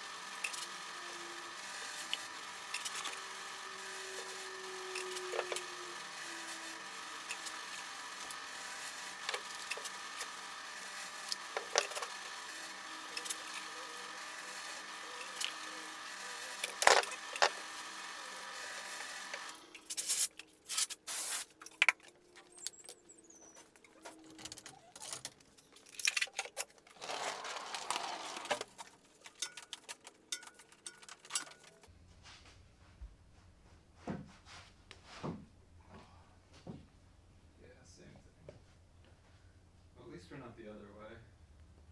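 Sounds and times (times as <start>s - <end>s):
workshop machine humming: 0.0s - 25.6s, 26.8s - 31.9s
bar clamps clicking and scraping: 23.6s - 31.9s.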